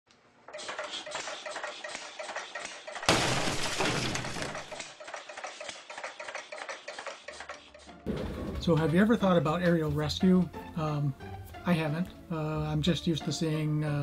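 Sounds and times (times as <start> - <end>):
glass breaking crash: 3.0 - 4.8.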